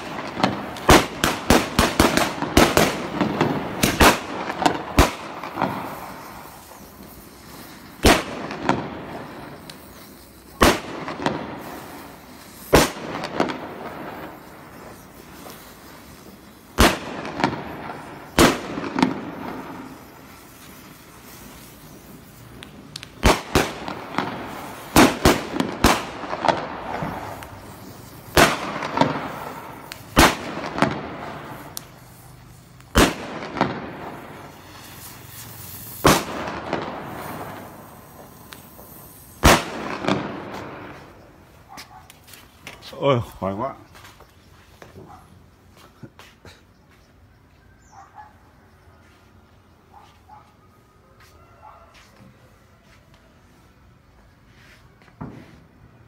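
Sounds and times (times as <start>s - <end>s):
firecrackers banging with echo: 0.0s - 42.8s.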